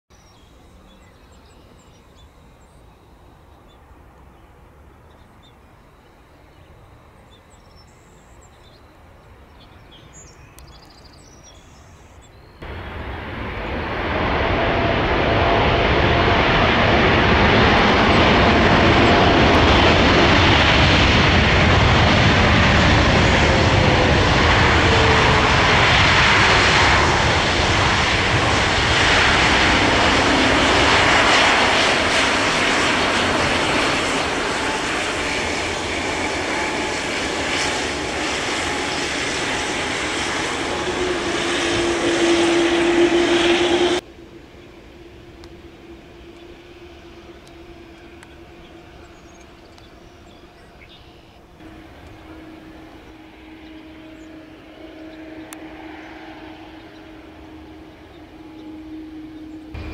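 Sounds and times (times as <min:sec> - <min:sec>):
faint outdoor background: 0:00.1 - 0:14.7
jet engines roaring: 0:12.6 - 0:59.9.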